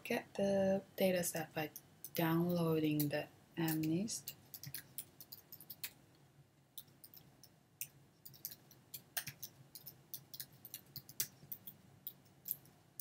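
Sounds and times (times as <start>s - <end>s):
keyboard typing: 3.0s - 6.0s, 6.8s - 13.0s.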